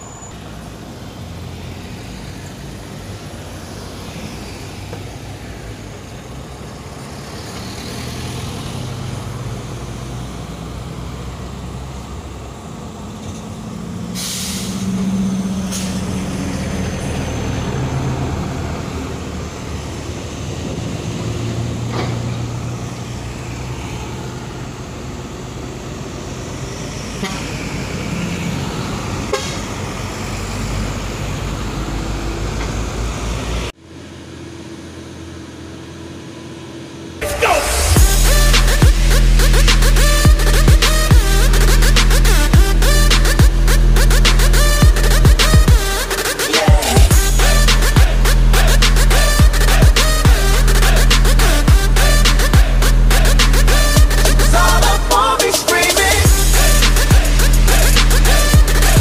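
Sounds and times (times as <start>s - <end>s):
distant engine: 0.0s - 35.3s, 37.0s - 59.0s
diesel trucks passing: 0.0s - 59.0s
air hiss: 14.2s - 15.0s.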